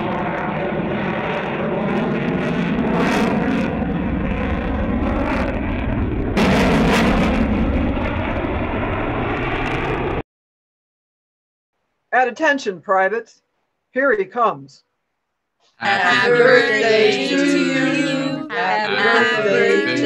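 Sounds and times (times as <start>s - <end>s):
jet engine noise: 0.0s - 10.2s.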